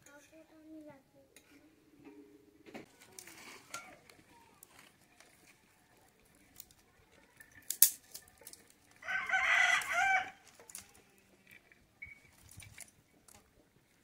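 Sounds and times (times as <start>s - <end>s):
rooster crowing: 9.0s - 10.4s.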